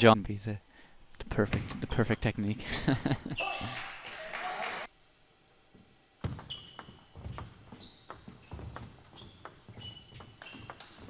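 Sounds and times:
shoes squeaking on floor: 0:06.2 - 0:11.0.

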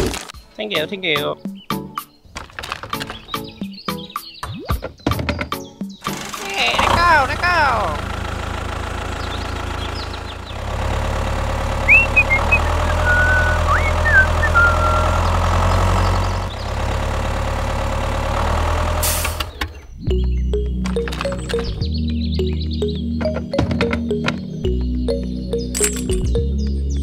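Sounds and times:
tractor engine rumbling: 0:06.2 - 0:27.0
short high chirps: 0:11.9 - 0:15.3.

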